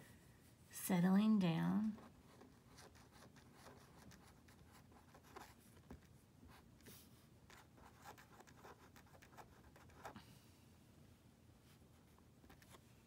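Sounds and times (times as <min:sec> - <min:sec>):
pen scratching on paper: 0:01.9 - 0:06.6, 0:07.5 - 0:10.2.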